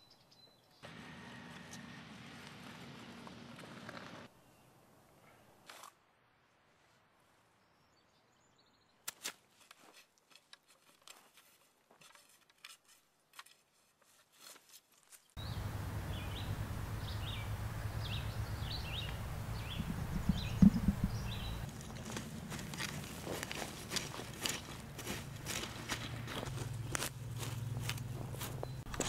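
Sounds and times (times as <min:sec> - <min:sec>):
bird chirps: 0:15.4 - 0:22.2, 0:28.5 - 0:28.9
low outdoor noise: 0:15.4 - 0:29.0
hoe scraping stony soil: 0:20.4 - 0:29.0.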